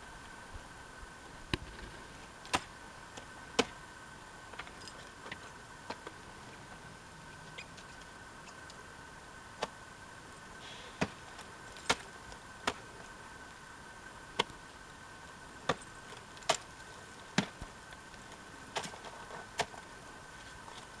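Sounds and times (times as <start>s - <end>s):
faint hum: 0.0s - 21.0s.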